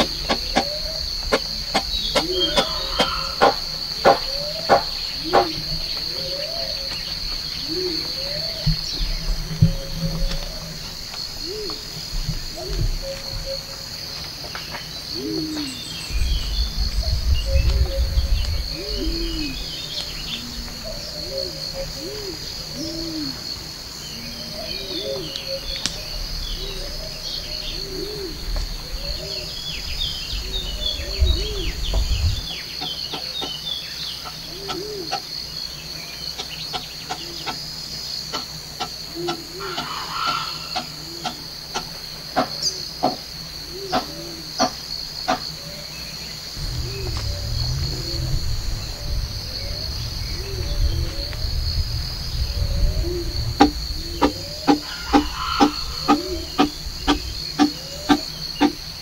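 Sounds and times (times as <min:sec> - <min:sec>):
scattered clicks and taps: 0:00.0 - 0:04.9
birds chirping: 0:00.0 - 0:59.0
high insect drone: 0:00.0 - 0:59.0
low rumble: 0:15.7 - 0:22.1, 0:24.5 - 0:32.6, 0:46.5 - 0:59.0.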